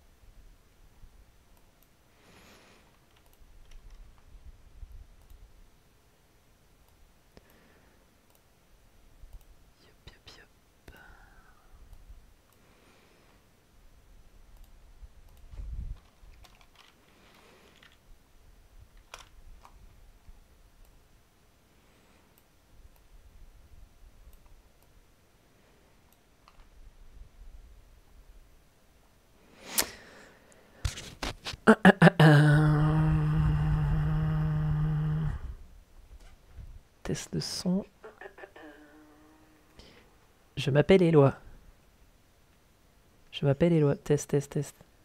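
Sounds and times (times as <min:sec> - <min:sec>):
faint clicking: 0:01.4 - 0:02.0, 0:02.8 - 0:05.5, 0:06.8 - 0:08.6, 0:09.2 - 0:09.6, 0:11.8 - 0:13.4, 0:14.5 - 0:18.1, 0:22.0 - 0:26.8.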